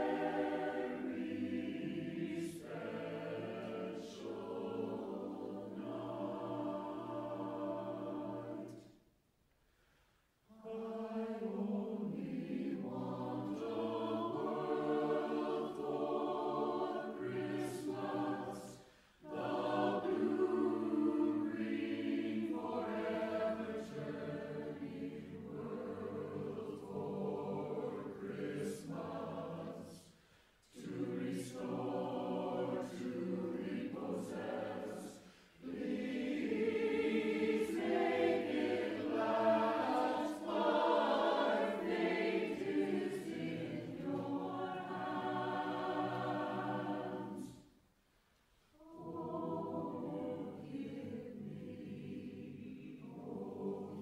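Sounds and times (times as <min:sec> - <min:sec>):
a cappella choir singing: 0:00.0 - 0:09.2, 0:10.2 - 0:54.0
singers breathing: 0:09.6 - 0:10.5, 0:18.8 - 0:19.2, 0:30.0 - 0:30.7, 0:35.1 - 0:35.6.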